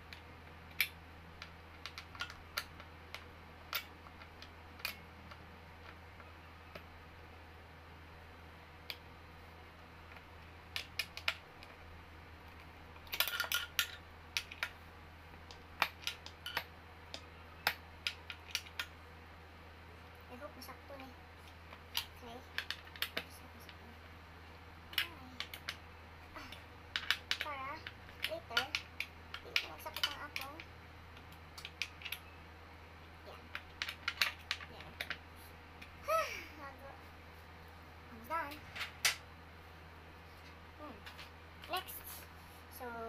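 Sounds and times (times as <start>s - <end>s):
small parts clicking and tapping: 0.0s - 6.9s, 10.0s - 11.8s, 12.4s - 19.0s, 20.9s - 24.1s, 24.8s - 32.4s, 33.0s - 36.0s
low steady hum: 0.0s - 43.0s.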